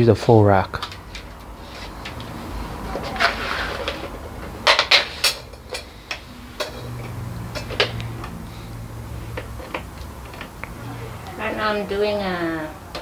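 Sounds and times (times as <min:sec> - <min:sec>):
poles clicking and clattering: 0:00.8 - 0:08.4.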